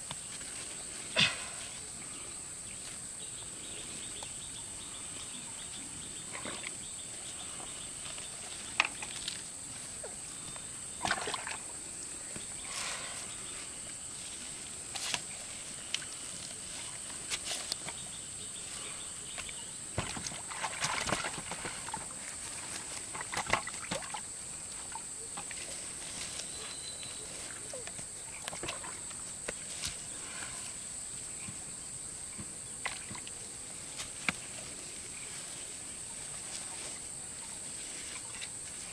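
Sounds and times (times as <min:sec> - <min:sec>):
water splashing and sloshing: 0:10.9 - 0:11.7, 0:20.0 - 0:25.8, 0:27.5 - 0:29.2.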